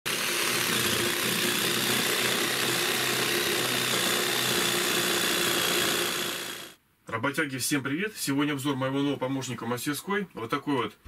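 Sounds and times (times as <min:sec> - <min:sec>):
jigsaw cutting wood: 0:00.0 - 0:06.8.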